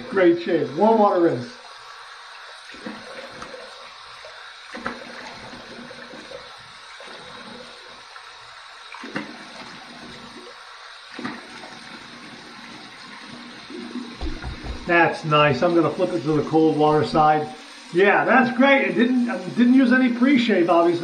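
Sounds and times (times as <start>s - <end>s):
water running from tap: 0.0s - 21.0s
water splashes on face: 13.8s - 15.2s.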